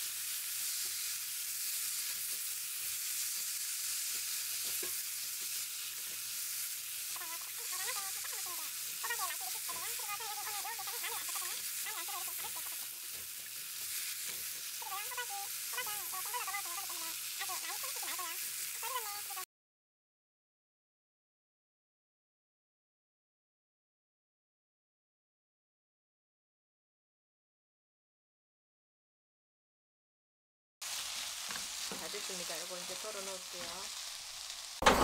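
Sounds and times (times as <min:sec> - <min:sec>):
vegetables sizzling in a wok: 0:00.0 - 0:19.5, 0:30.8 - 0:35.0
spatula stirring and scraping: 0:00.6 - 0:16.9.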